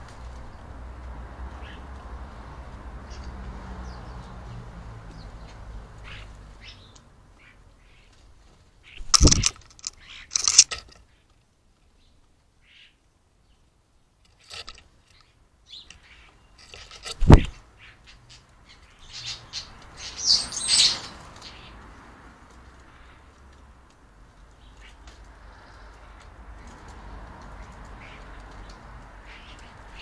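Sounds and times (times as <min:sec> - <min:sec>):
starlings chirping and clicking: 0:02.6 - 0:08.2, 0:08.8 - 0:11.4, 0:14.3 - 0:22.0, 0:24.4 - 0:30.0
wings flapping: 0:09.0 - 0:10.7.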